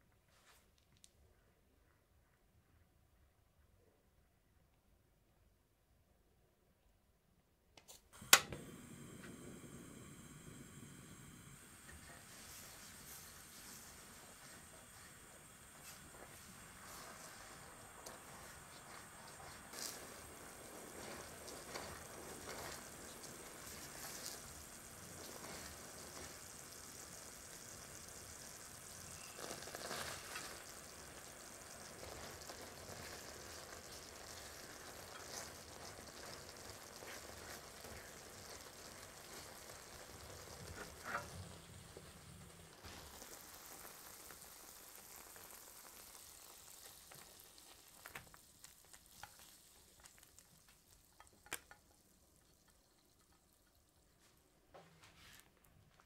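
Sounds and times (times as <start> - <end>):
sugar mixture bubbling and sizzling: 8.2 - 54.7
spatula stirring: 15.7 - 42.2, 45.0 - 54.0.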